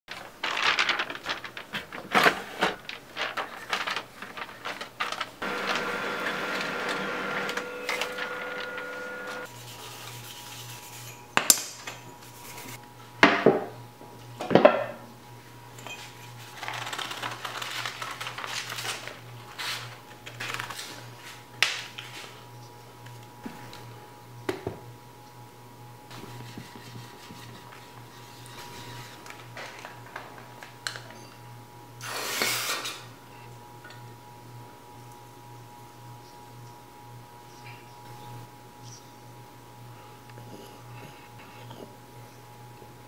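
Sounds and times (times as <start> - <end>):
scouring pad scrubbing metal: 5.4 - 9.5.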